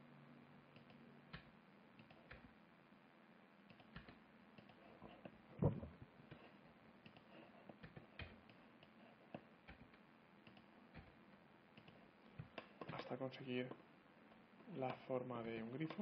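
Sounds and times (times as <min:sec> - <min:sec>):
computer mouse and keyboard clicks: 0:00.8 - 0:02.5, 0:03.7 - 0:11.2, 0:11.8 - 0:13.8, 0:15.8 - 0:16.0
thump: 0:05.6 - 0:06.0.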